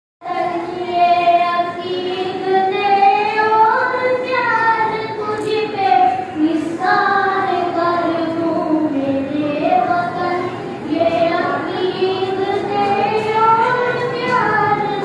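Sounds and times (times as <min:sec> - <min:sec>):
boy singing unaccompanied: 0:00.2 - 0:15.0.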